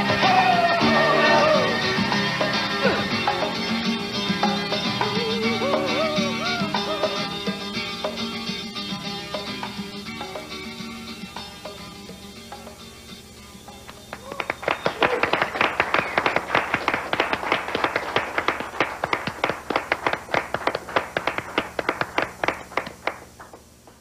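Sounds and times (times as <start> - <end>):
rock song: 0.0 - 12.8
audience applauding: 13.9 - 24.0.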